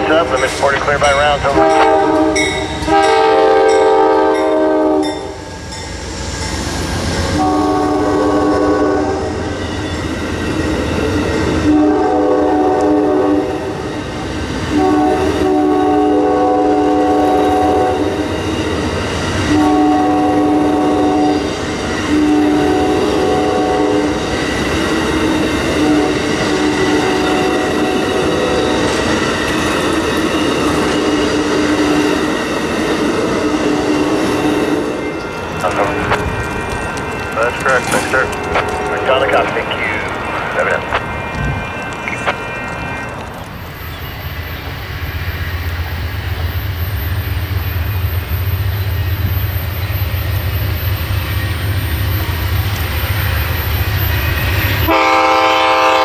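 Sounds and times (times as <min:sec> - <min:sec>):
train wheels clattering on rails: 0:00.0 - 0:11.7, 0:16.8 - 0:56.0
train horn long blasts: 0:01.4 - 0:05.4, 0:07.3 - 0:09.6, 0:11.6 - 0:13.8, 0:14.7 - 0:18.4, 0:19.4 - 0:24.2, 0:25.7 - 0:28.9, 0:54.8 - 0:56.0.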